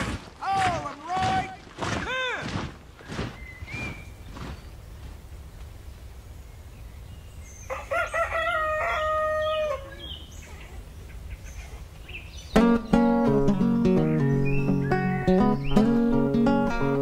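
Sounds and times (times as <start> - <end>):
rooster crowing: 7.7 - 10.1.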